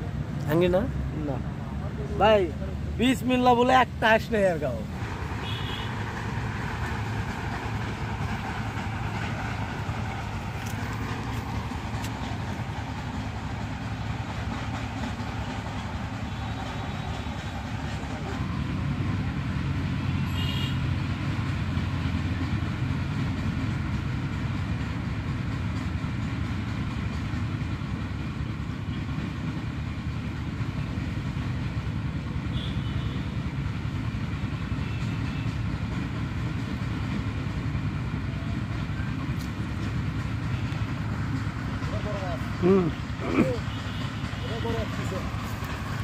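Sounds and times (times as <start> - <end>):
train passing rumble: 0.0 - 46.0.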